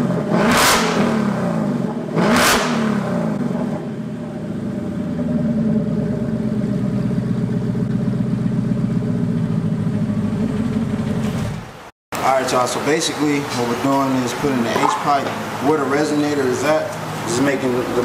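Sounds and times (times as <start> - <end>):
loud car engine idling: 0.0 - 11.6
engine rev blip: 0.1 - 3.6.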